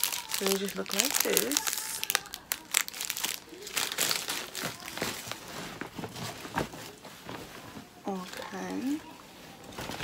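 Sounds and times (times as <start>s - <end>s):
candy wrappers crinkling: 0.0s - 7.0s.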